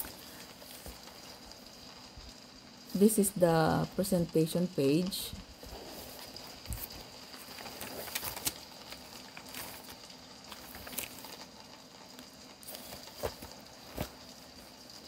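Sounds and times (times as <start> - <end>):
paper pages rustling: 0.0 - 1.4, 5.6 - 11.7, 12.6 - 15.0.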